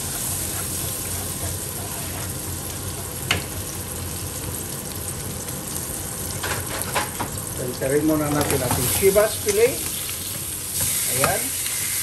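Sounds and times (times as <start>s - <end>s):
spatula stirring in pan: 0.0s - 2.8s
fish sizzling in frying pan: 0.0s - 12.0s.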